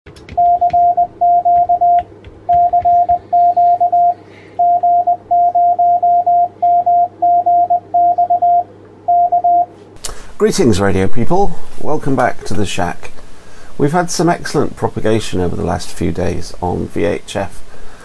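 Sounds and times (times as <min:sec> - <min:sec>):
faint low hum: 0:00.1 - 0:18.0
morse code beeps: 0:00.3 - 0:09.7.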